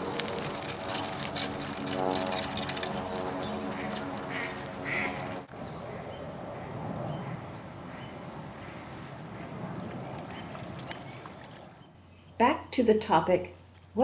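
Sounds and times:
cart rolling over dirt: 0.0 - 5.4
mechanical hum: 0.0 - 7.6
outdoor ambience by water: 0.0 - 12.6.

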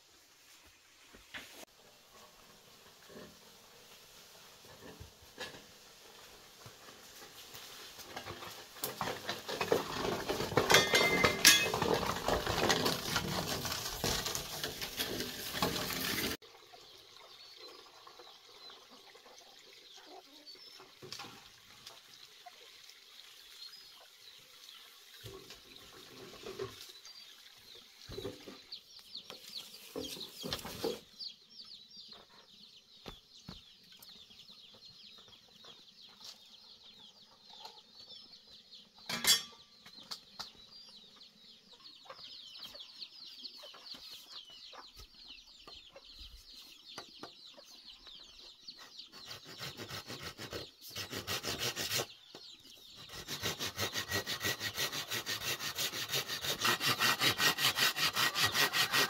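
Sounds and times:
rustling through dry leaves: 11.6 - 16.4
chickens chirping and clucking: 16.0 - 22.7, 23.6 - 54.0.

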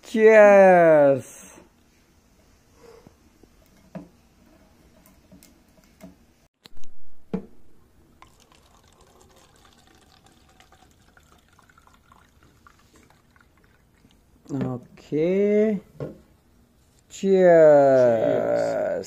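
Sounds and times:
wine pouring into paper cup: 8.1 - 14.3.

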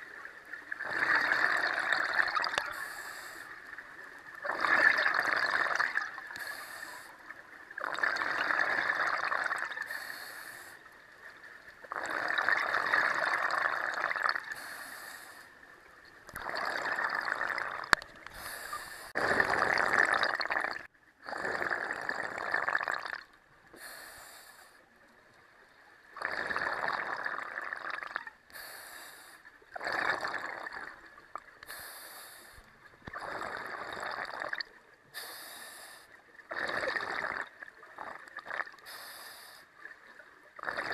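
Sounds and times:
exhaled bubbles underwater: 0.0 - 24.0, 25.6 - 28.7, 29.6 - 31.8, 32.7 - 39.0, 39.7 - 40.9
regulator hissing inhales: 2.7 - 3.6, 6.4 - 7.2, 9.9 - 10.8, 14.5 - 15.5, 18.3 - 19.2, 23.8 - 24.8, 28.5 - 29.5, 31.6 - 32.7, 35.1 - 36.2, 38.8 - 39.7.

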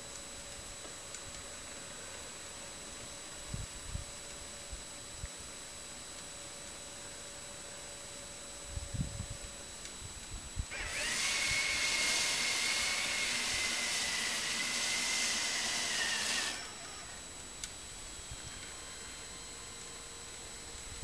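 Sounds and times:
small electric motor whining: 8.7 - 21.0.

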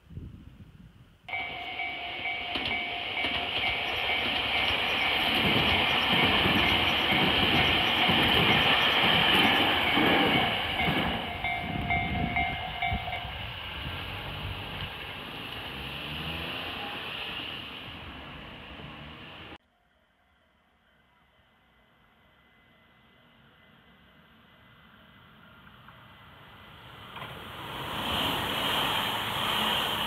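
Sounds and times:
level crossing warning bell: 1.3 - 13.6
electric train passing: 1.3 - 19.6, 21.7 - 30.0.

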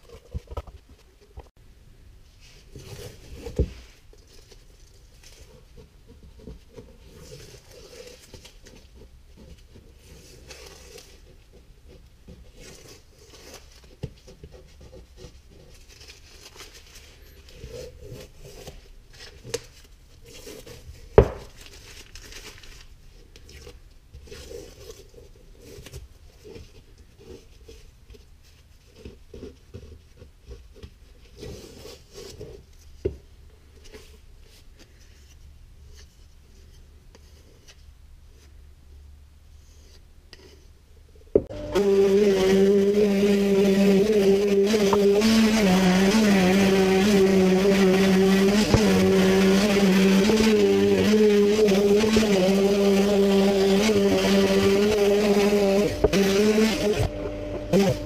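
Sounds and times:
masking tape peeling and crumpling: 15.4 - 26.0, 41.8 - 57.1.

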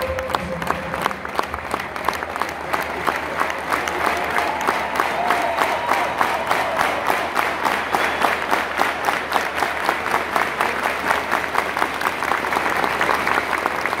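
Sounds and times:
stadium crowd applauding: 0.0 - 14.0.

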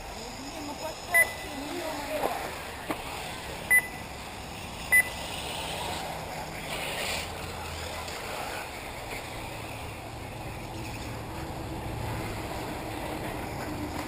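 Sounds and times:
electric rc cars running: 0.0 - 14.0
short electronic beeps: 1.1 - 1.6, 3.7 - 4.1, 4.9 - 5.2.

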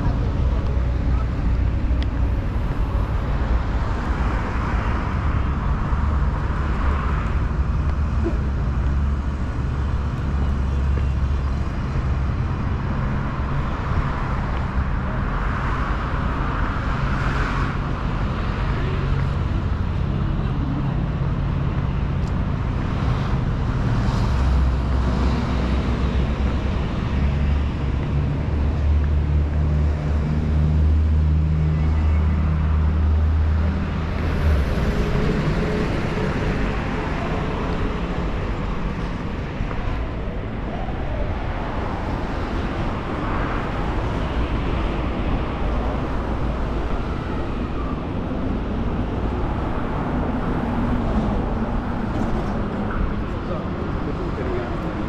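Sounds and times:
cars passing: 0.0 - 55.0
traffic rumble: 0.0 - 55.0.

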